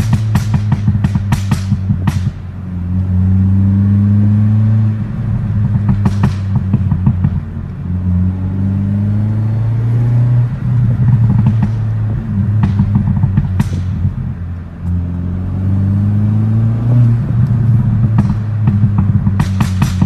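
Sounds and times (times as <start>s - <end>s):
exhaust pop: 0.0s - 2.6s, 5.5s - 7.7s, 10.8s - 15.0s, 17.1s - 20.0s
car engine revving: 0.0s - 20.0s.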